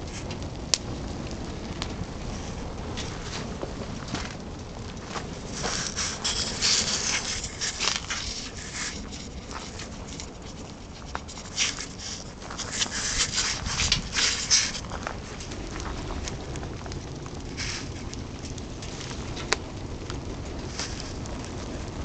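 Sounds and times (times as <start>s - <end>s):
fire crackling and hissing: 0.0s - 22.0s.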